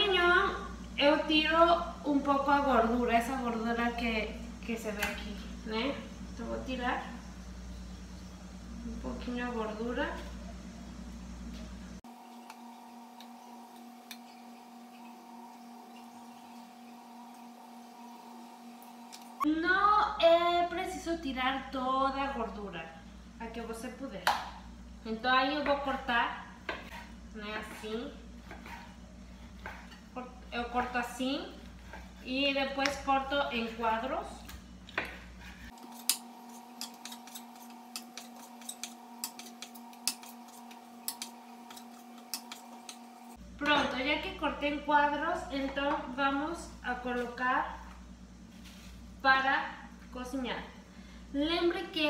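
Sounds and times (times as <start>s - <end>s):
faint steady hum: 0.0s - 52.0s.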